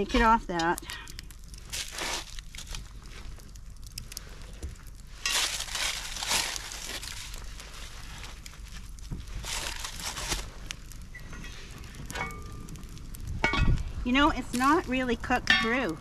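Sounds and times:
parchment paper crinkling: 0:00.0 - 0:11.1.

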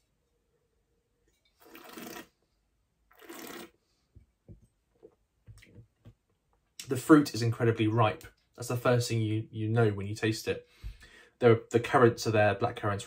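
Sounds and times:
person slurping wine: 0:01.6 - 0:02.4, 0:03.1 - 0:03.8.

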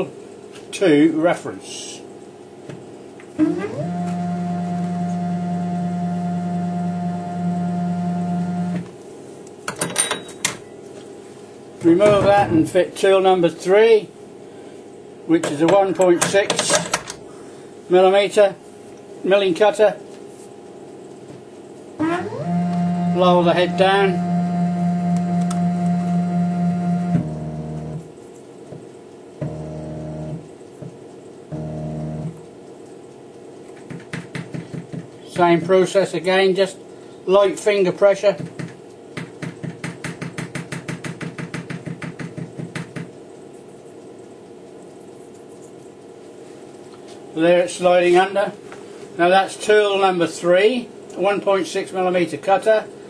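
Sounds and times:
stepper motor whine: 0:03.4 - 0:08.8, 0:22.0 - 0:28.1, 0:29.4 - 0:30.5, 0:31.5 - 0:32.4
stepper motor whirring: 0:22.0 - 0:28.0.

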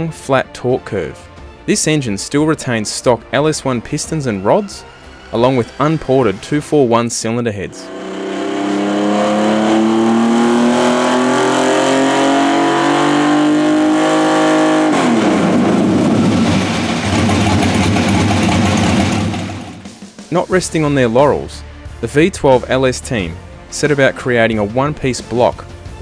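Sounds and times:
engine revving at full throttle: 0:07.6 - 0:20.0.

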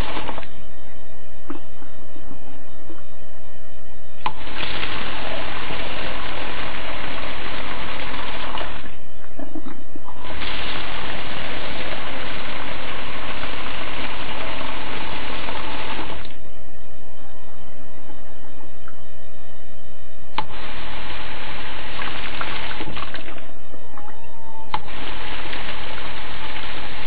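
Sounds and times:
liquid gushing through pouring spout: 0:04.3 - 0:08.9, 0:10.2 - 0:16.3.

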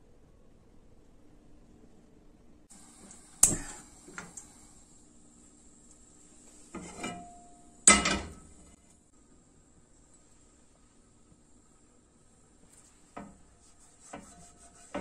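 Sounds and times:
pan clanking on metal grate: 0:06.8 - 0:08.6.

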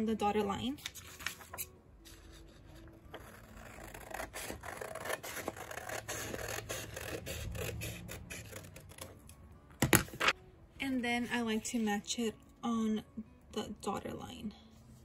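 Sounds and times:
scissors cutting paper: 0:03.1 - 0:09.3.

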